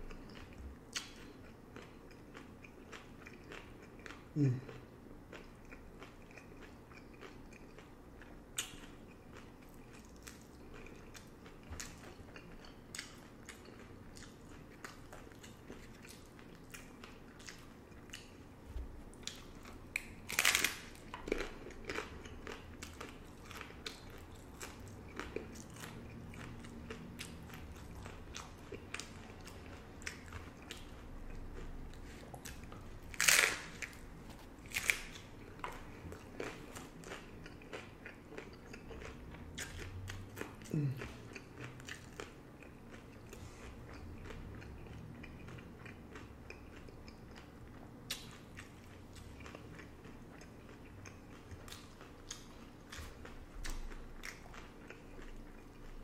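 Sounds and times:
chewing: 0.0s - 56.0s
taco shell crunching: 19.2s - 31.7s, 32.4s - 40.5s.

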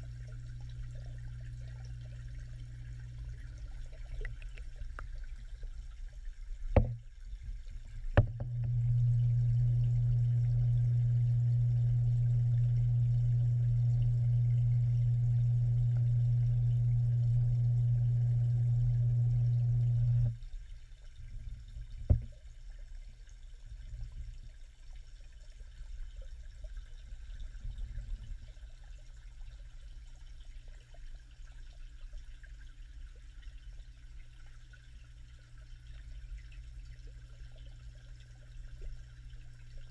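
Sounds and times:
faint low rumble of water: 0.0s - 39.9s
steady low hum underwater: 0.0s - 39.9s
sharp knocks underwater: 6.7s - 7.1s, 8.0s - 8.8s, 22.0s - 22.4s.

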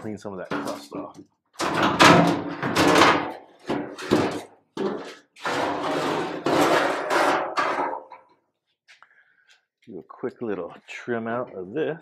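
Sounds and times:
metal scraping and rattling: 0.4s - 8.3s.

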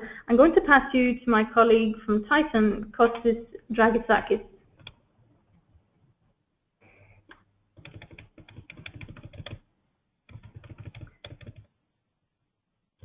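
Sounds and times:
keyboard typing: 7.2s - 9.6s, 10.3s - 11.7s.

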